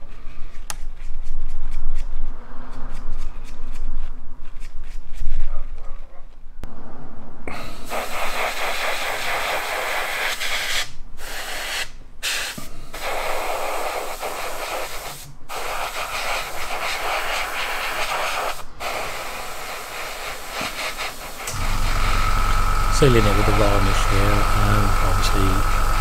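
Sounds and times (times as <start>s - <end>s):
airbrush spraying hiss: 7.5s - 26.0s.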